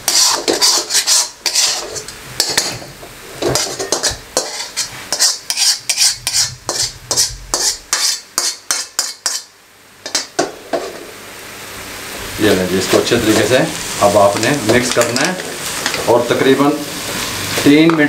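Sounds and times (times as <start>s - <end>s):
metal spatula scraping metal pan: 0.0s - 9.5s.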